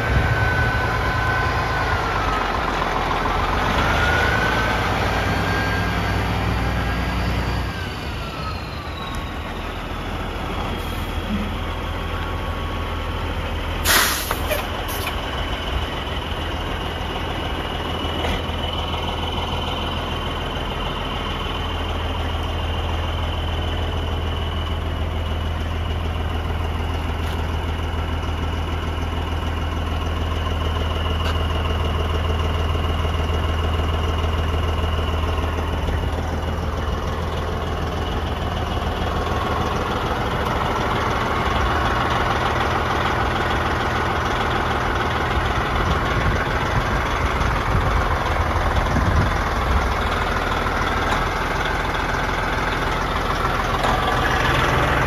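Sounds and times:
diesel engine idling: 0:00.0 - 0:55.0
engine whine: 0:00.0 - 0:55.0
air release hiss: 0:13.8 - 0:15.0.

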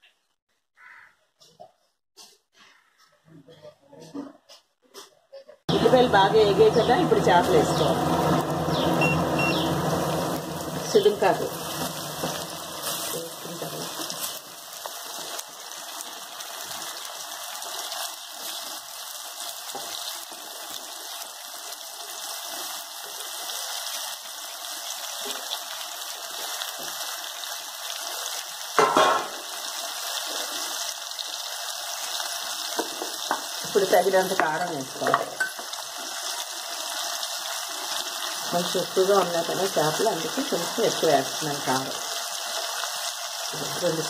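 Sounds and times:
fish sizzling in oil: 0:05.9 - 0:44.0
utensil clattering on pan: 0:28.8 - 0:29.4.

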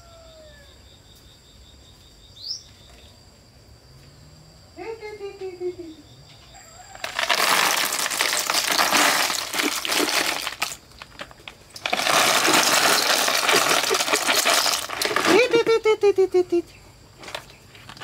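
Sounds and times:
snail shells clattering in trays: 0:07.0 - 0:15.6.

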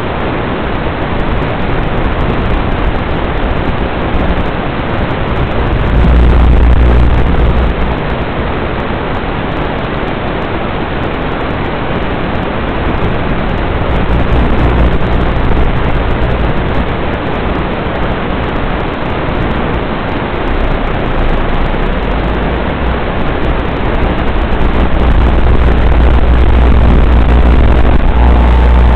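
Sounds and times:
static hiss: 0:00.0 - 0:28.9
low hum: 0:02.2 - 0:08.4, 0:12.8 - 0:18.7, 0:20.5 - 0:28.9.

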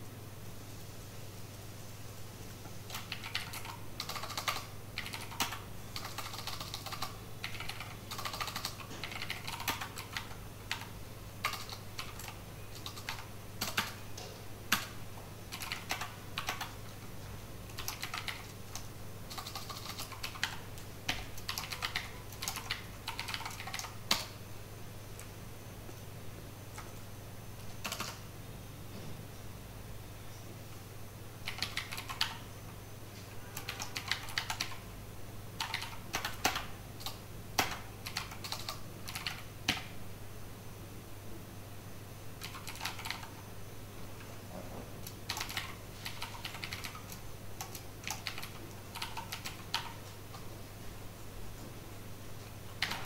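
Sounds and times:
steady low hum: 0:00.0 - 0:53.0
typing on keyboard: 0:02.8 - 0:16.8, 0:17.6 - 0:24.4, 0:27.6 - 0:28.2, 0:31.4 - 0:32.5, 0:33.6 - 0:34.8, 0:35.6 - 0:40.0, 0:42.4 - 0:43.4, 0:45.0 - 0:50.4, 0:52.8 - 0:53.0.

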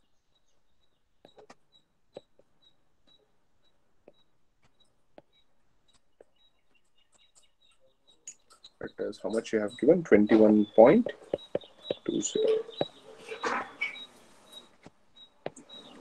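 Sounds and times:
stylus tapping on tablet screen: 0:01.2 - 0:08.6, 0:09.8 - 0:13.0.

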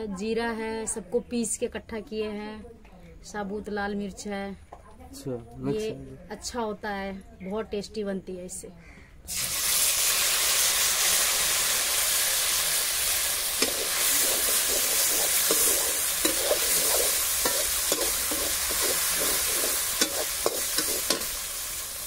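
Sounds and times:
paste sizzling in hot oil: 0:09.3 - 0:22.0
ladle scraping metal pan: 0:13.6 - 0:21.4.

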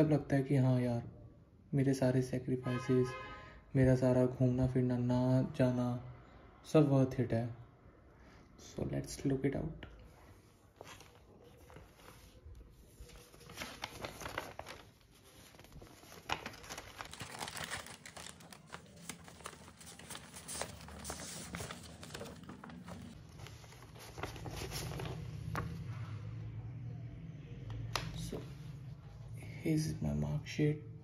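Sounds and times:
paper envelope crinkling: 0:10.7 - 0:25.9.

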